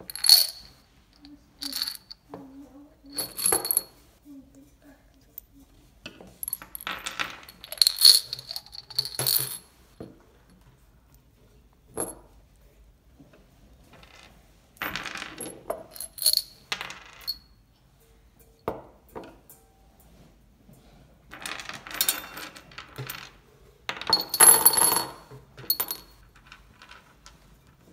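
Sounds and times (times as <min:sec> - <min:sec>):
nuts and bolts clinking and rattling: 0:00.0 - 0:02.5, 0:03.1 - 0:04.0, 0:06.2 - 0:09.8, 0:14.0 - 0:17.6, 0:21.3 - 0:27.8.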